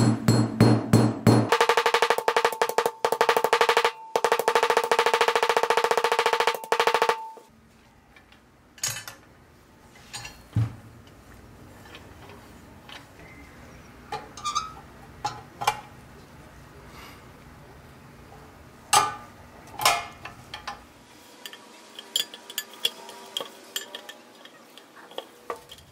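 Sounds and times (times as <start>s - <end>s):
fast metallic taps ringing: 0.0s - 7.5s.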